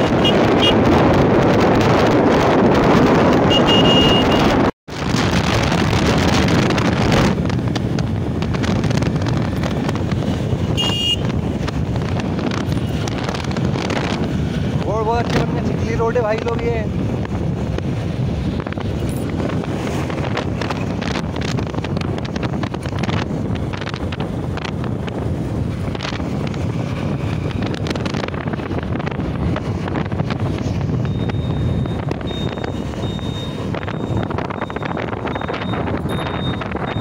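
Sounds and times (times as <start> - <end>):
motorcycle engine and tyres: 0.0 - 37.0
wind buffeting microphone: 0.0 - 37.0.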